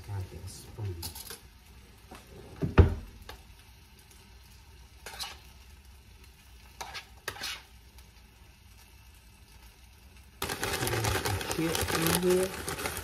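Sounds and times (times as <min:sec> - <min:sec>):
spoon scraping wet vegetables: 0:05.0 - 0:05.5, 0:06.8 - 0:07.8.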